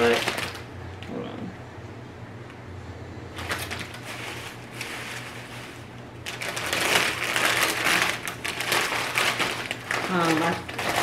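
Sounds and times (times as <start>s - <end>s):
plastic bag crinkling: 0.0s - 0.7s, 3.3s - 11.0s.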